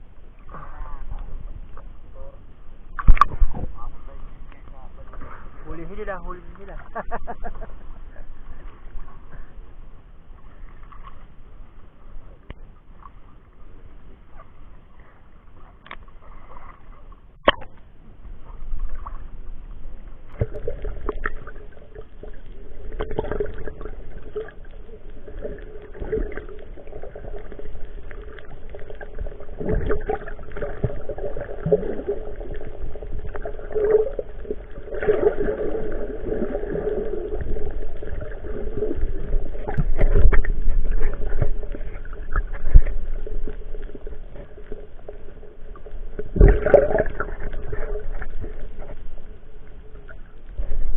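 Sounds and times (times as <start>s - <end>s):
muffled underwater gurgling: 20.2s - 50.9s.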